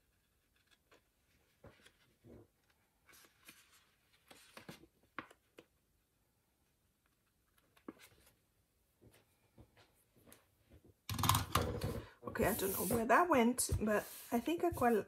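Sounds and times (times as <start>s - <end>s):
paper rustling: 0.0s - 5.7s.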